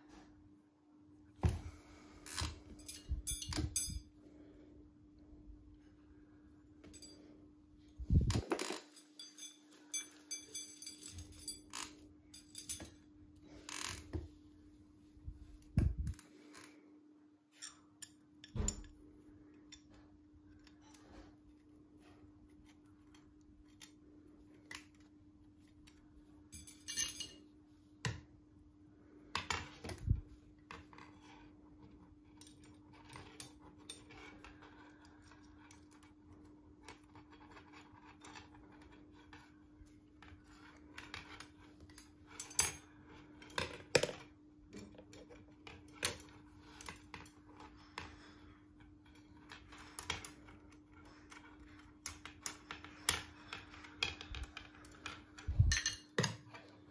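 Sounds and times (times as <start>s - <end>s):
metal lamp parts clinking: 2.4s - 4.1s, 6.8s - 7.3s, 8.2s - 13.0s, 26.5s - 27.5s, 54.3s - 56.6s.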